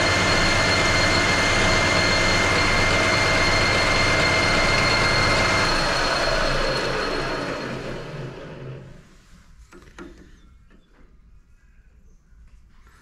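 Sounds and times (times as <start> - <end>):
lathe winding down: 0.0 - 9.0
metal lathe running: 0.0 - 9.0
high machine whine: 0.0 - 9.1.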